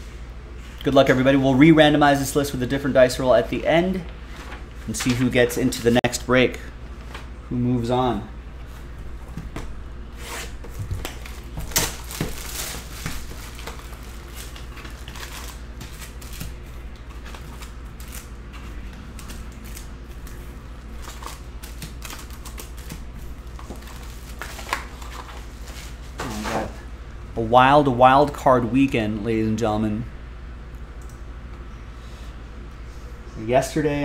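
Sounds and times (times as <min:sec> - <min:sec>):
card packs rustling and clicking: 0:04.5 - 0:05.9, 0:10.6 - 0:26.8
plastic wrap crinkling and tearing: 0:11.0 - 0:16.6, 0:21.0 - 0:25.8.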